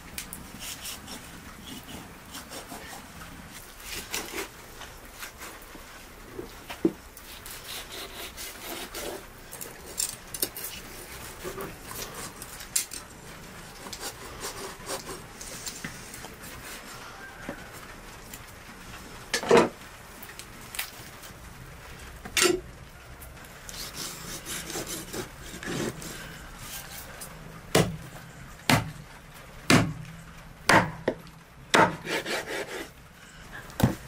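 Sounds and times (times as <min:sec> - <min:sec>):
knife sawing through meat and bone: 0:00.6 - 0:03.0, 0:03.8 - 0:04.5, 0:07.3 - 0:09.2, 0:13.8 - 0:15.6, 0:23.7 - 0:27.2, 0:31.8 - 0:32.9.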